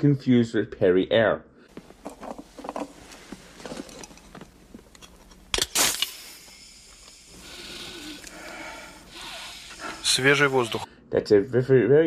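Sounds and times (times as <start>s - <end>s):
can cracked open with pop and hiss: 5.5s - 7.3s
breathy hiss of air: 5.8s - 11.1s.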